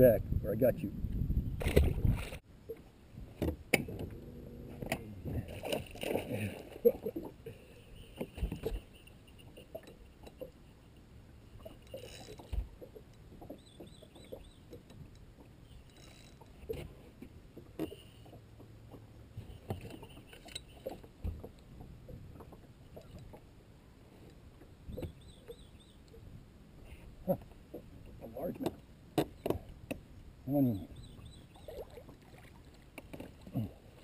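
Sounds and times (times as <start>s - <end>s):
water lapping against boat hull: 1.5s - 34.0s
bird chirping: 13.5s - 14.7s, 24.9s - 26.1s, 30.7s - 31.8s.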